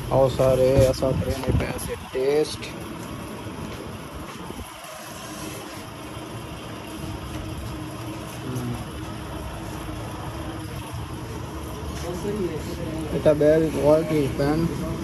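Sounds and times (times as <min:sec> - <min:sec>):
low traffic rumble: 0:00.0 - 0:15.0.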